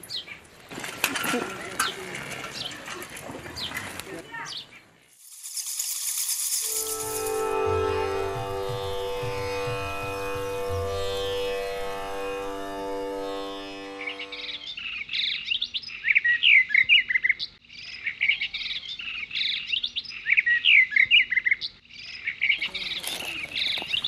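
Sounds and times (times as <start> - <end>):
songbirds chirping: 0.0 - 5.2, 13.3 - 24.0.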